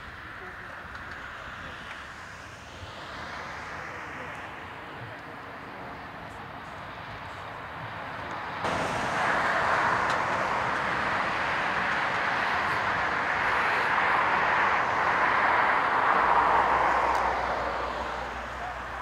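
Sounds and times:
passing vehicle rushing: 0:08.4 - 0:19.0.

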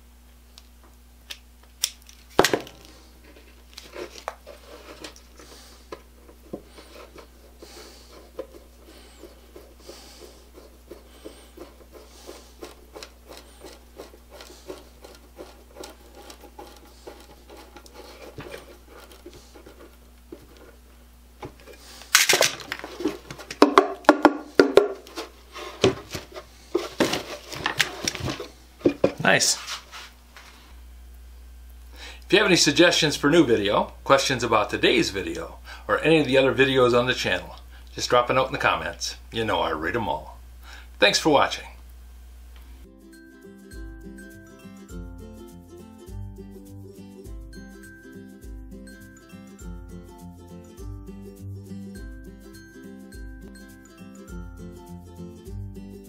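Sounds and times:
block scraping along wood: 0:06.3 - 0:20.8.

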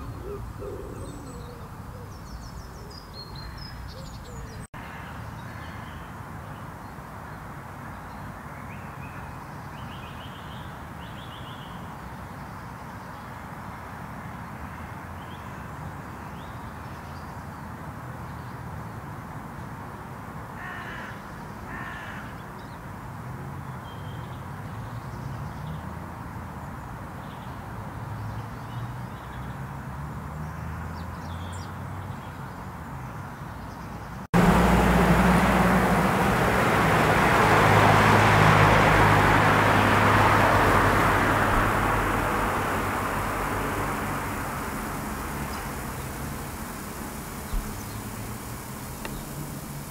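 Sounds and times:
bird calls: 0:00.0 - 0:06.0, 0:34.4 - 0:49.9
loud traffic noise: 0:34.4 - 0:49.9.

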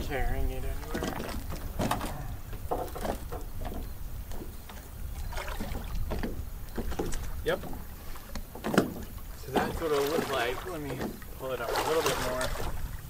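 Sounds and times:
boat hull scraping wooden boards: 0:00.0 - 0:13.0.

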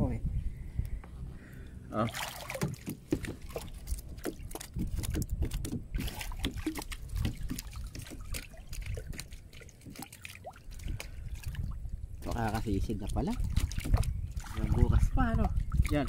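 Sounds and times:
river water splashing: 0:02.0 - 0:05.2, 0:05.9 - 0:12.6, 0:13.3 - 0:14.9.

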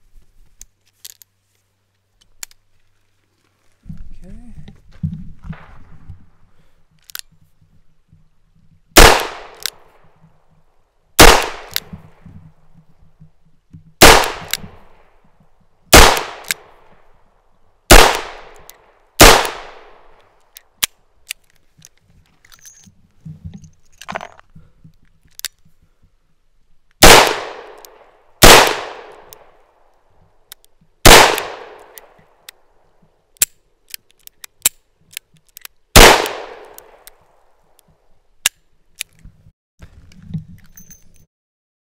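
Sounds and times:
revolver gunshots with echo: 0:09.0 - 0:09.7, 0:11.2 - 0:11.9, 0:14.0 - 0:14.7, 0:15.9 - 0:16.7, 0:17.9 - 0:18.6, 0:19.2 - 0:20.0, 0:27.0 - 0:27.8, 0:28.4 - 0:29.3, 0:31.0 - 0:31.9, 0:36.0 - 0:37.0
revolver hammer cocking clicks: 0:11.2 - 0:11.9
metallic clicks and rattles: 0:20.4 - 0:25.7, 0:37.8 - 0:41.3.

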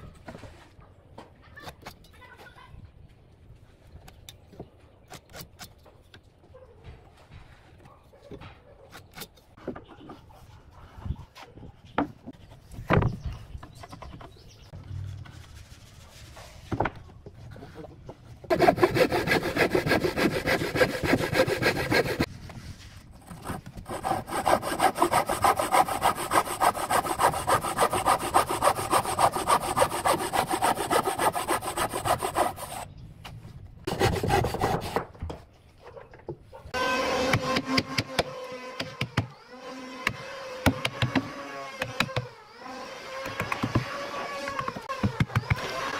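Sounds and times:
hand saw cutting wood: 0:18.5 - 0:22.3, 0:23.2 - 0:32.9, 0:33.9 - 0:35.1, 0:36.8 - 0:45.9.

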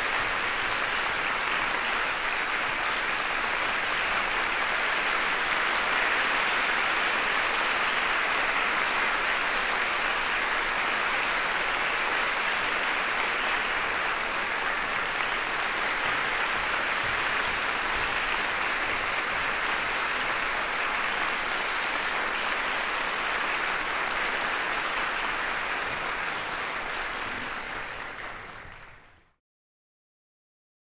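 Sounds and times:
audience applauding: 0:00.0 - 0:29.3.

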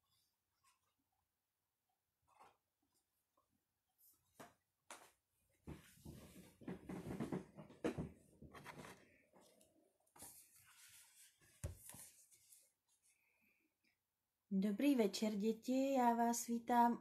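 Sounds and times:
book pages flipping: 0:02.3 - 0:03.1, 0:08.4 - 0:13.0.

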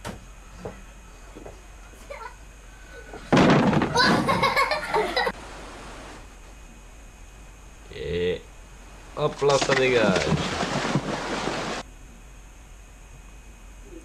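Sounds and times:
plastic toy hoop crashing over: 0:03.3 - 0:04.4.

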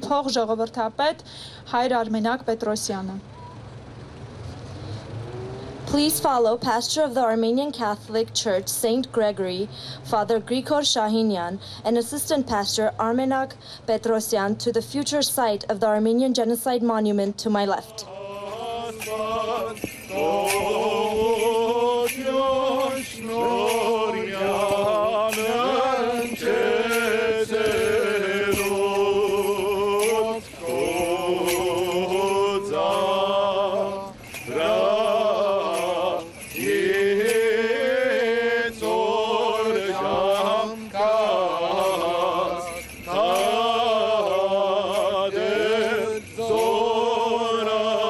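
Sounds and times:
steady low drone: 0:17.8 - 0:47.0
men singing a church chant: 0:17.8 - 0:48.0.

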